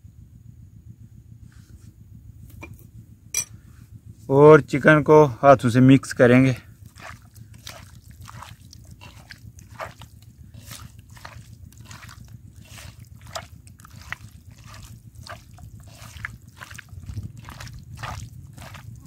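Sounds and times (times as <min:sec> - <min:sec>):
wet squelches of marinating chicken: 0:06.1 - 0:19.0.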